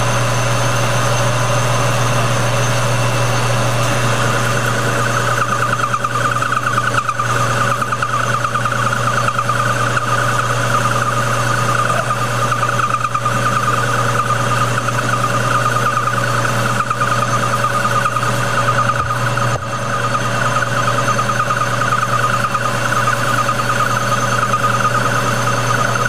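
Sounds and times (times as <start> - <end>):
metal lathe running: 0.0 - 26.0.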